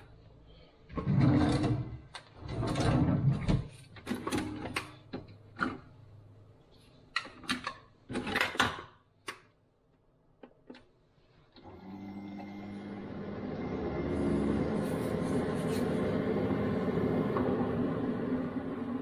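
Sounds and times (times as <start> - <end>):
lid clattering open and shut: 7.2 - 9.4.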